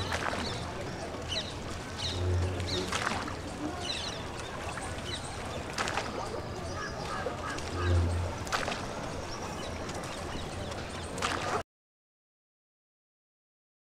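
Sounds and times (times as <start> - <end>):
sharp splashes: 0.0 - 9.3, 11.2 - 11.6
steady outdoor noise: 0.0 - 11.6
water splashing: 0.0 - 11.6
distant calls: 6.3 - 8.7.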